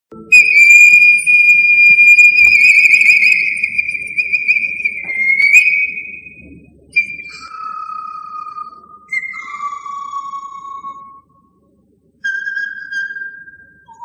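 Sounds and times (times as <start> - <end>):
pan flute long high note: 0.1 - 11.2.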